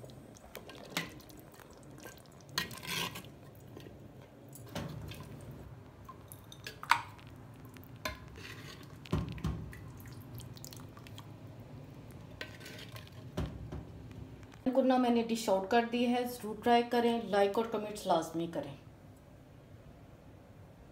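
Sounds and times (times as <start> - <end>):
gravy dripping into bowl: 4.5 - 13.6.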